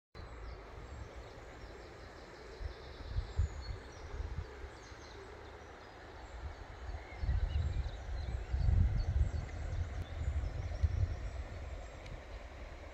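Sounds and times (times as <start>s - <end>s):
wind gusting on microphone: 2.6s - 4.8s, 6.3s - 12.9s.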